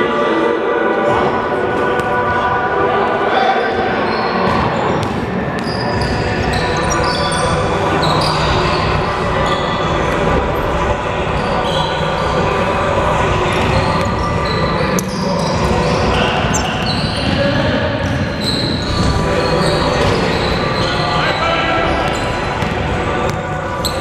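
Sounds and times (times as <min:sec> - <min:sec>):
players' voices echoing: 0:00.0 - 0:24.0
sneaker squeaks: 0:03.6 - 0:10.7, 0:11.4 - 0:12.5, 0:13.5 - 0:24.0.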